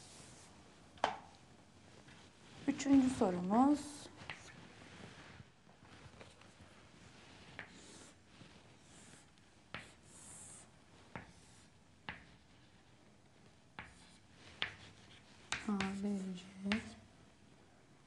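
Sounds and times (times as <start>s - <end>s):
chalk tapping: 4.2s - 4.5s, 7.5s - 7.9s, 9.2s - 12.8s, 13.7s - 17.0s
chalk scratching on chalkboard: 7.2s - 12.8s, 13.8s - 17.0s.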